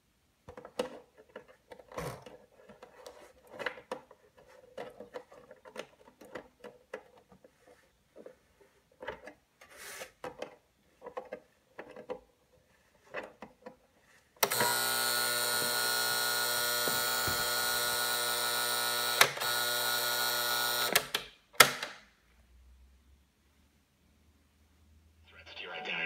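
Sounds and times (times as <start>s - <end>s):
harsh alarm buzzer: 14.4s - 21.1s.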